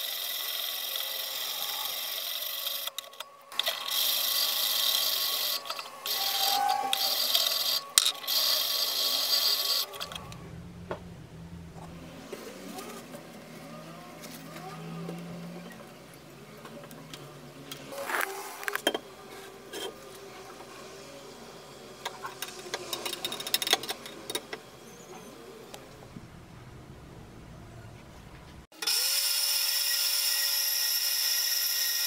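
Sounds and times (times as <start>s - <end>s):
steady low hum: 9.1s - 14.2s, 18.6s - 28.7s.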